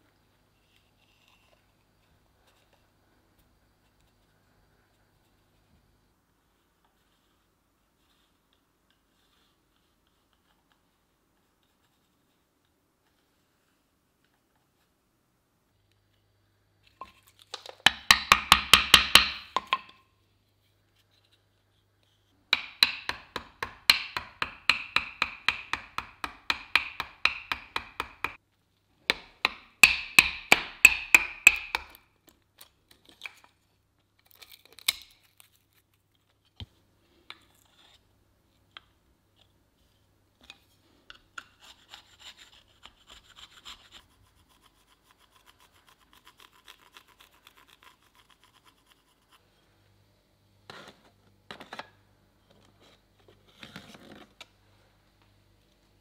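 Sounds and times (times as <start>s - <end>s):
knife scraping wood: 40.5s - 49.6s.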